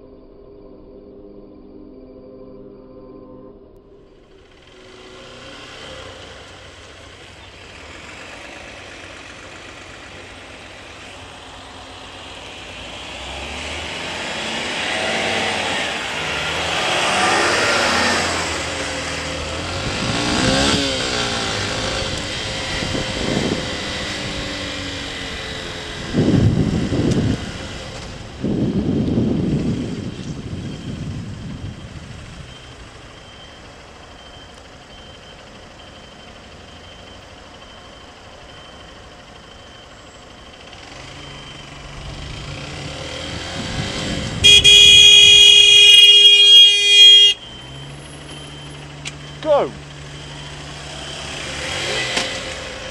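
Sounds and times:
motorcycle engine: 3.8 - 52.9
vehicles passing: 3.8 - 52.9
wind noise: 19.7 - 32.9, 43.2 - 45.8
short loud bursts: 44.4 - 47.4.

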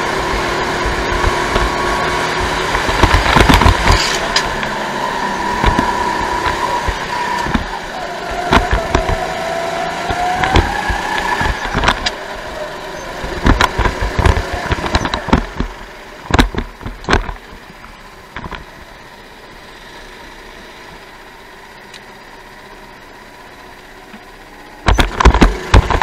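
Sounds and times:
go-kart engine: 0.0 - 26.0
sharp knocks and thuds: 0.6 - 4.8, 5.5 - 9.4, 10.0 - 12.2, 13.2 - 17.6, 18.3 - 18.7, 24.9 - 26.0.

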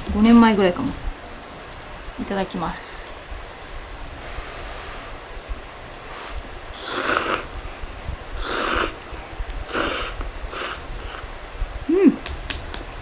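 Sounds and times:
noodles being slurped: 6.8 - 7.6, 8.4 - 9.1, 9.7 - 11.2
person humming: 11.9 - 12.3.

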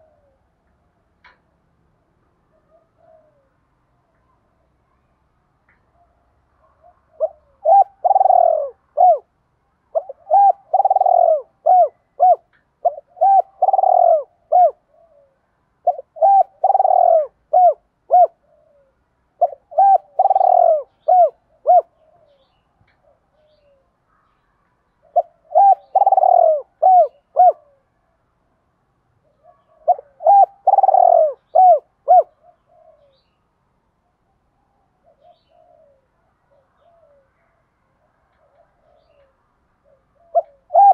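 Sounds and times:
dove cooing: 0.0 - 0.6, 2.5 - 3.6, 6.6 - 9.3, 9.9 - 23.9, 25.0 - 27.9, 29.2 - 33.2, 34.9 - 37.6, 38.3 - 40.9.

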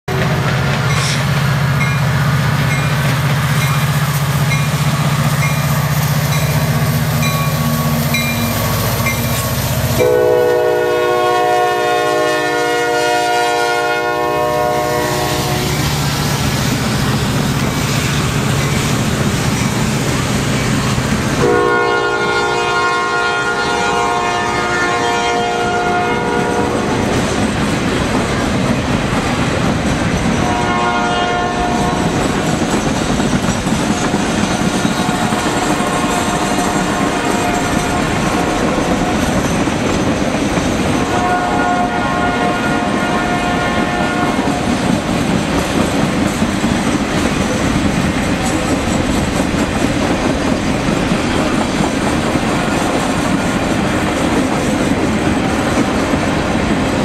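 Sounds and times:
diesel locomotive drone: 0.0 - 57.0
train air horn blasts: 5.4 - 16.0, 21.4 - 27.1, 30.4 - 32.2, 34.9 - 39.4, 41.0 - 44.8.

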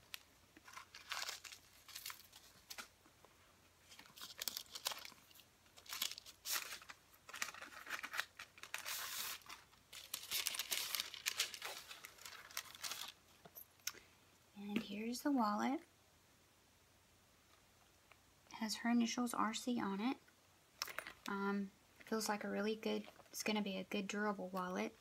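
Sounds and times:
tissue paper rustling: 0.0 - 3.0, 3.8 - 13.2.

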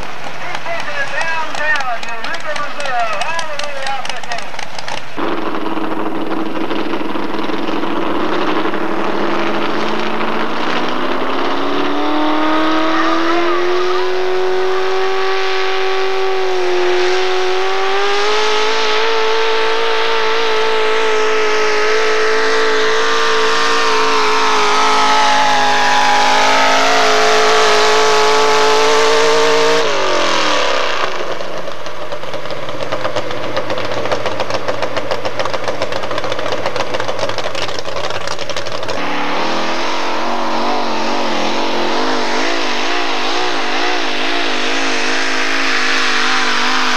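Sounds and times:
truck engine at full throttle: 0.0 - 46.9.

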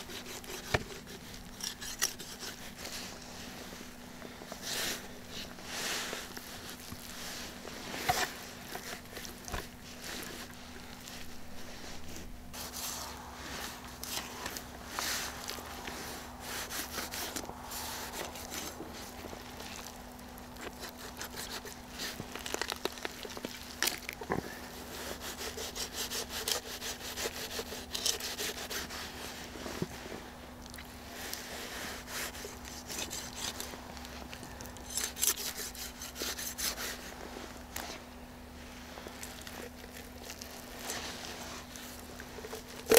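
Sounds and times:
knife slicing raw chicken: 0.0 - 2.8.

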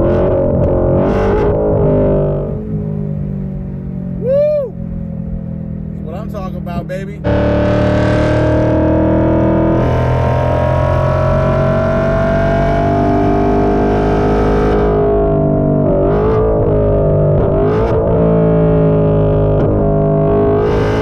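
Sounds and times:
car engine accelerating: 0.0 - 21.0
engine revving blips: 7.2 - 21.0.

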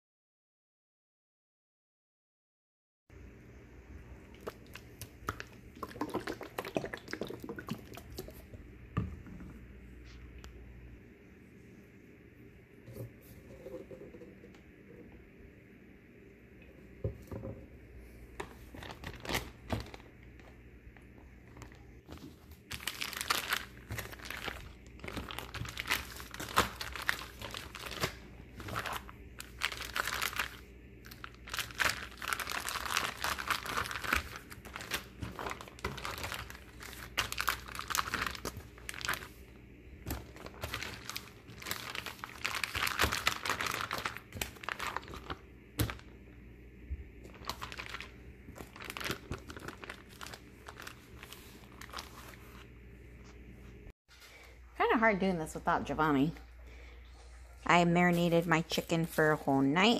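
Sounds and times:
plastic bag crinkling: 18.4 - 46.2, 47.2 - 52.7.

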